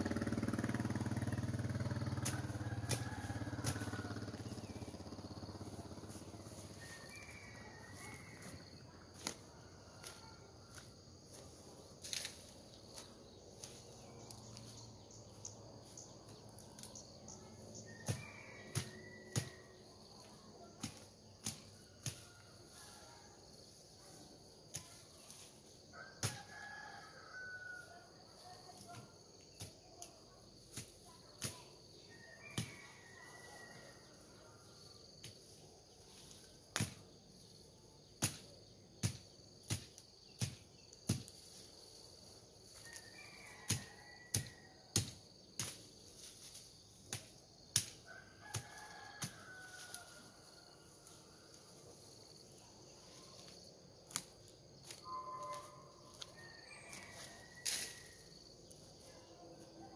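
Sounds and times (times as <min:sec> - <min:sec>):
rooster crowing: 0:01.1 - 0:08.8, 0:17.8 - 0:19.8, 0:25.9 - 0:28.3, 0:32.1 - 0:35.2, 0:42.8 - 0:44.8, 0:48.0 - 0:51.6, 0:55.0 - 0:58.6
bamboo and brush cracking: 0:12.0 - 0:14.8, 0:36.1 - 0:37.1, 0:42.7 - 0:50.3, 0:53.2 - 0:59.1.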